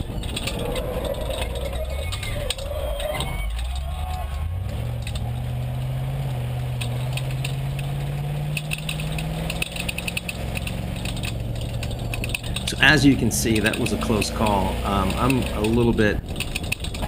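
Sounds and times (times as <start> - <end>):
engine pulling under load: 0.0 - 17.0
rapid clicking and rattling: 0.0 - 17.0.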